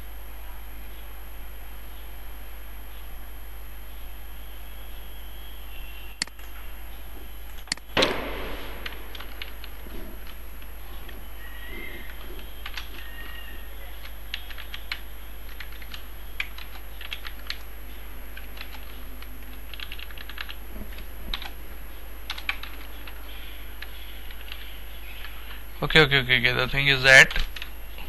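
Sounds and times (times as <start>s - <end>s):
steady low hum: 0.0s - 28.0s
keyboard typing: 8.8s - 11.2s, 11.8s - 17.7s, 18.3s - 21.6s, 22.3s - 23.2s.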